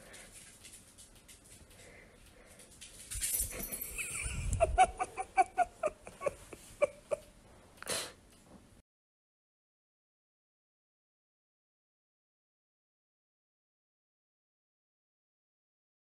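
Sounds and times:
breathy puff: 7.8s - 8.2s.

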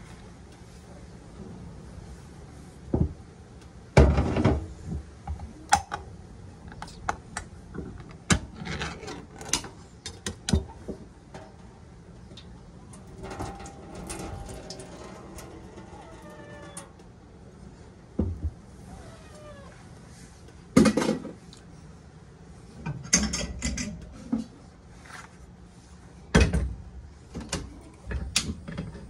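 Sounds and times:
metallic clicks and scrapes: 8.5s - 17.0s.

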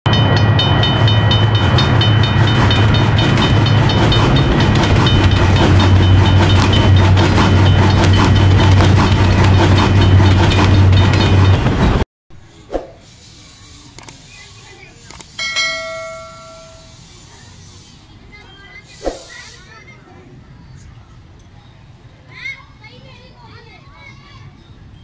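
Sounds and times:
rhythmic clicking of wheels: 0.1s - 12.0s
train rumbling past: 0.1s - 25.0s.

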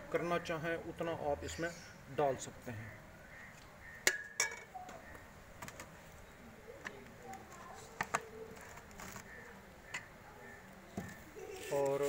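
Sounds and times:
faint bird chirps: 2.7s - 5.4s, 6.0s - 11.9s
plastic bottle being handled: 6.8s - 10.1s.

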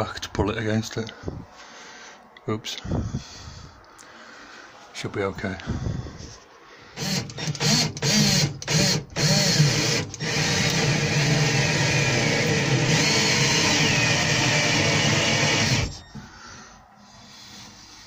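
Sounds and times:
cordless drill driving screw: 7.0s - 16.1s.

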